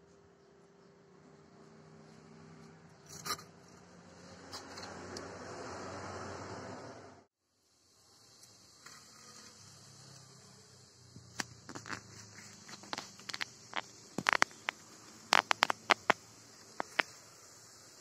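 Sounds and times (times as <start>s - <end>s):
seeds crackling in hot oil: 7.5s - 18.0s.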